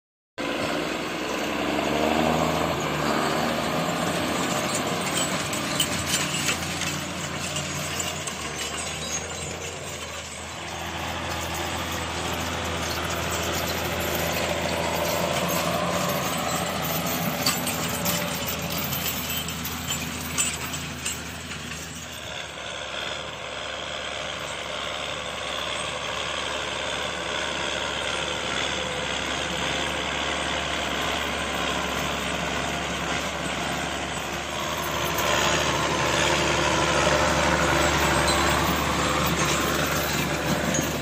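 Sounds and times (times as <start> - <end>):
tractor diesel engine running: 0.4 - 41.0
light clinks: 4.0 - 22.4, 36.9 - 41.0.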